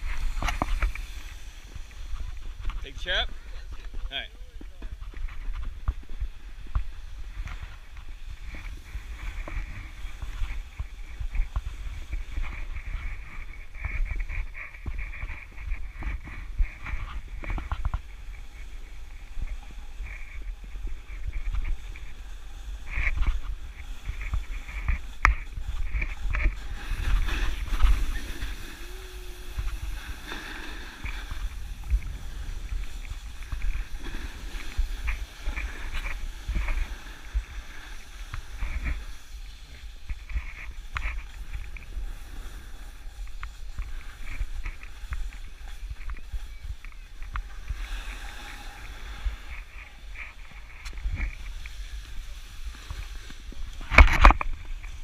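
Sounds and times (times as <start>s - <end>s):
knocks and scrapes: 0.0s - 3.2s, 4.8s - 18.7s
wind rumble on microphone: 0.0s - 55.0s.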